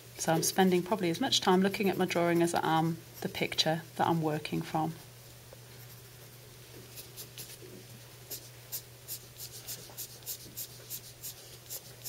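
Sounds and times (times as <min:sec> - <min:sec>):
pencil scratching on paper: 0:08.3 - 0:12.0.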